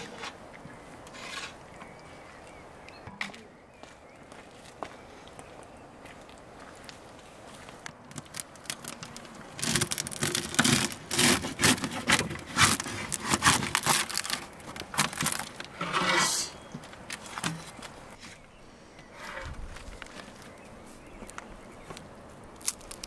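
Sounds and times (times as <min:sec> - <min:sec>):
metal spatula scraping pot: 0:01.1 - 0:01.6, 0:15.8 - 0:16.6
rice crust crackling and tearing: 0:08.1 - 0:15.7, 0:22.5 - 0:23.0.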